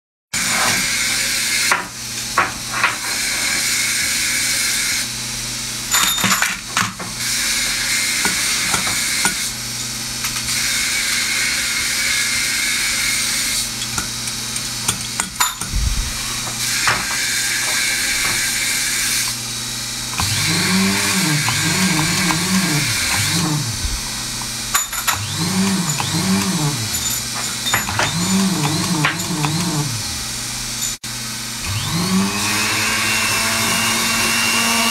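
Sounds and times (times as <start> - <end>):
drill motor high whirr: 2.9 - 5.2, 7.2 - 9.6, 10.5 - 13.8, 15.7 - 34.9
low rising and falling tone: 15.7 - 16.4, 22.6 - 24.4.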